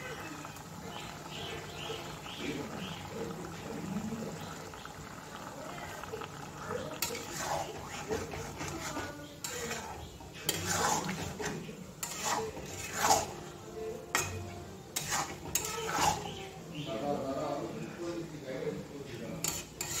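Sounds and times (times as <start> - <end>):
metal spatula scraping pan: 6.7 - 16.5, 19.4 - 20.0.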